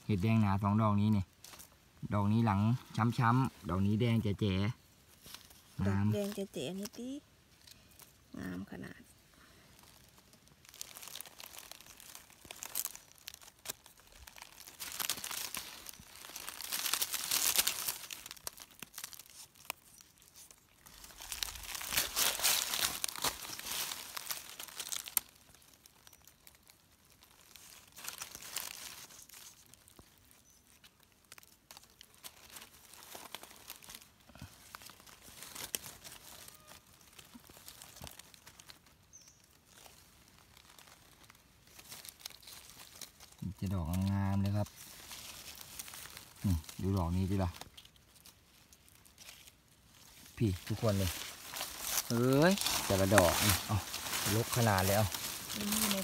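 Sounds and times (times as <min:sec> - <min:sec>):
dry leaves crackling and rustling: 0:00.0 - 0:56.0.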